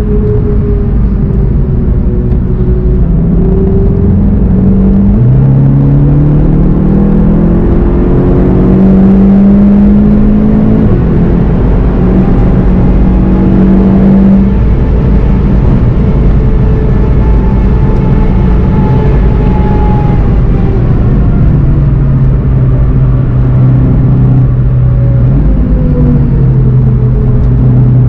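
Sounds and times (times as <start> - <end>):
car engine accelerating: 0.0 - 28.0
road and wind noise: 0.0 - 28.0.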